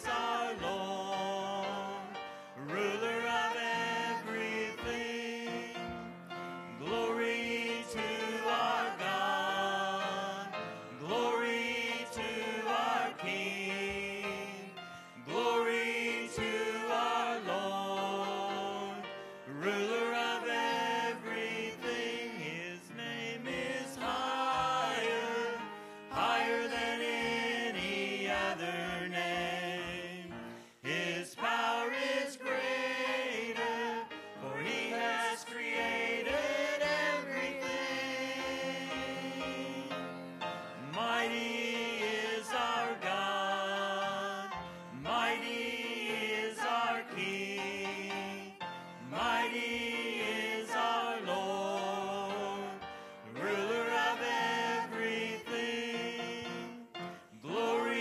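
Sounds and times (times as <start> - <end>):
gospel singing with instruments: 0.0 - 58.0.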